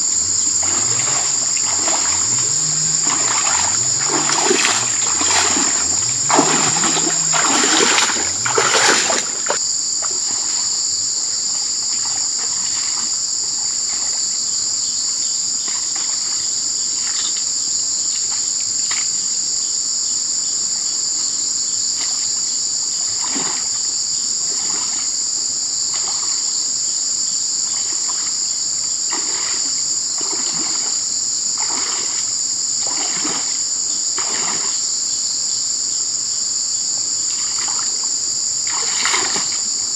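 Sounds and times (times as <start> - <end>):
footsteps splashing in stream water: 0.0 - 10.7, 29.1 - 34.8, 37.4 - 38.0, 38.6 - 39.9
high-pitched insect chorus: 0.0 - 39.9.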